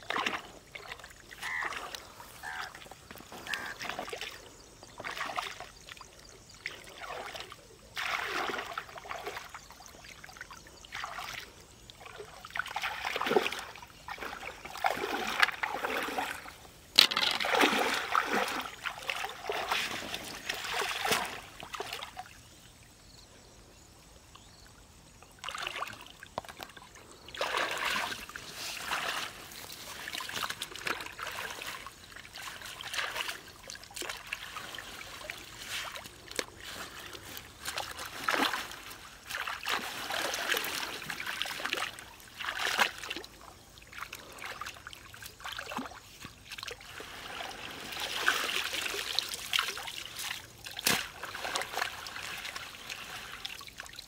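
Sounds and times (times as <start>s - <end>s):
river water splashing and sloshing: 0.0s - 54.0s
water running off mesh net: 45.4s - 54.0s.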